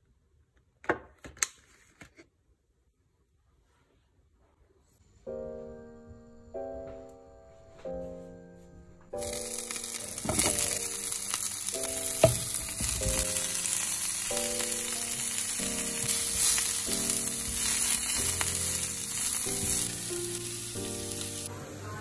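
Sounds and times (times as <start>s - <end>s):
background music: 5.2s - 22.0s
vegetables sizzling in oil: 9.2s - 22.0s.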